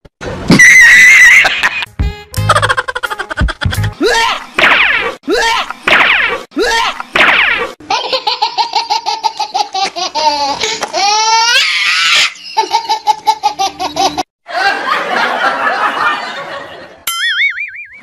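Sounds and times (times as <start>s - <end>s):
laughter sound effect: 1.2s - 4.4s, 12.4s - 18.0s.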